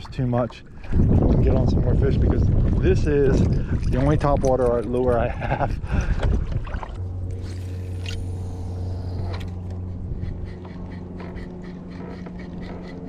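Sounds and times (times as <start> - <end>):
wind buffeting microphone: 0.0 - 7.1
low mechanical hum: 0.0 - 13.0.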